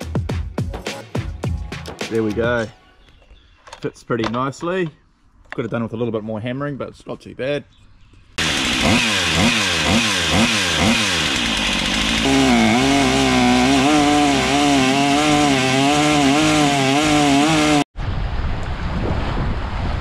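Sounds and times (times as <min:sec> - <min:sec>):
two-stroke engine revving: 0:08.4 - 0:17.9.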